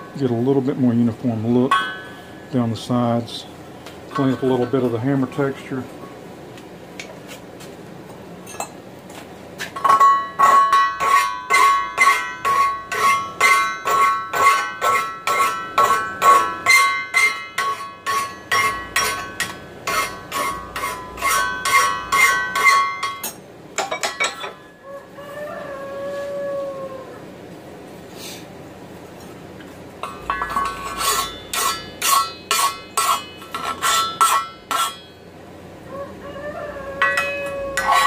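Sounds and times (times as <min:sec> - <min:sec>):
pan ringing: 0:01.6 - 0:02.8, 0:30.0 - 0:35.4, 0:37.0 - 0:38.0
file stroking steel: 0:11.0 - 0:23.2, 0:30.4 - 0:35.1, 0:37.0 - 0:38.0.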